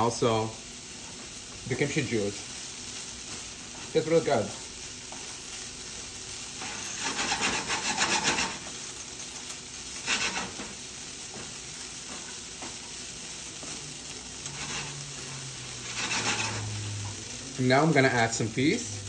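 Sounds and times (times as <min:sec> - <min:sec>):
low sizzle of frying: 0:00.0 - 0:19.0
spatula scraping skillet: 0:06.4 - 0:18.8.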